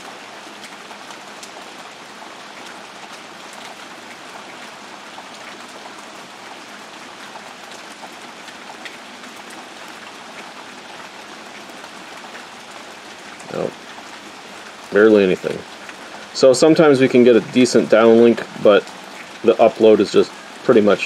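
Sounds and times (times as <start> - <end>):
rain downpour hiss: 0.0 - 21.0
raindrop ticks: 0.5 - 21.0.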